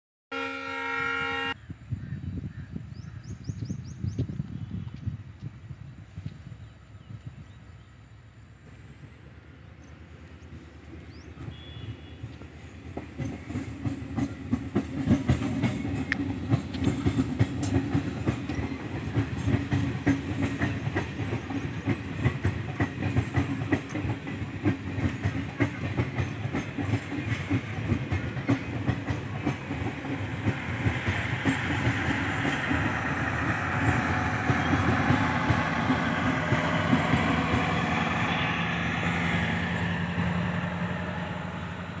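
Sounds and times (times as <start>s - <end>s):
train wheels clickety-clack: 9.8s - 42.0s.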